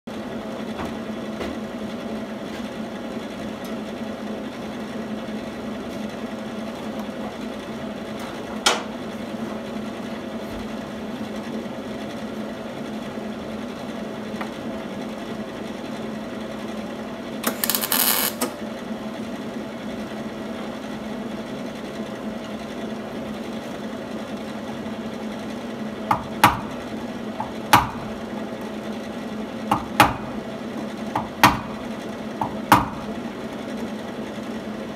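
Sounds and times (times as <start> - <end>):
steady machine hum: 8.9 - 34.9
welding crackle: 17.4 - 18.6.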